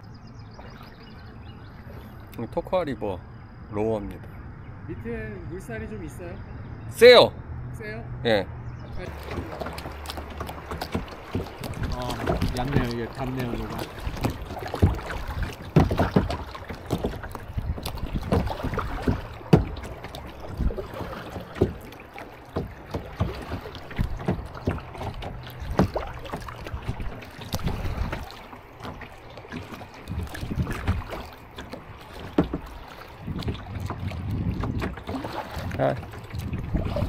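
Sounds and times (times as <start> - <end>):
paddle strokes splashing: 0.3 - 2.4, 8.9 - 37.0
paddle knocking against kayak: 9.0 - 37.0.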